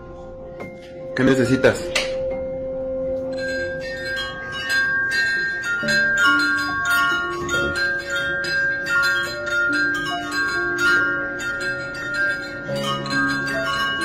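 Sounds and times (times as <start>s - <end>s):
metal wind chime jangling: 3.3s - 14.0s.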